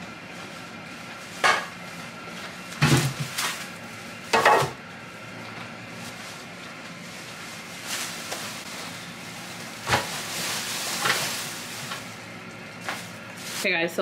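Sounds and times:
plastic bags rustling: 0.3 - 4.4, 5.9 - 14.0.

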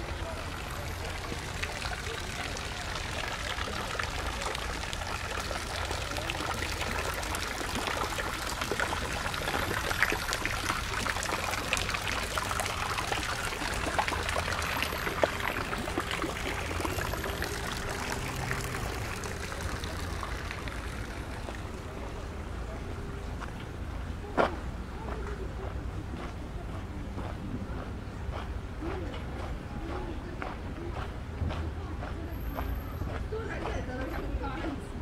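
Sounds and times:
water pouring and splashing: 0.0 - 22.8.

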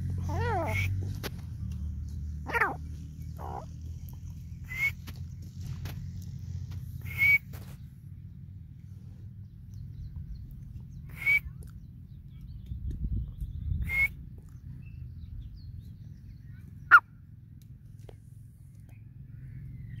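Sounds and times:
steady low rumble: 0.0 - 20.0
bird call notes: 0.3 - 1.1, 4.6 - 5.2, 7.0 - 7.7, 11.0 - 11.7, 13.7 - 14.2.

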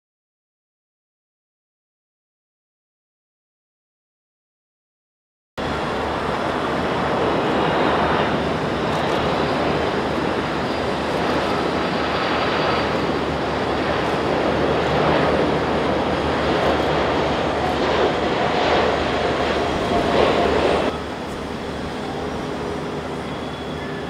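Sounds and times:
faint high whine: 5.6 - 24.0
jet engines: 5.6 - 24.0.

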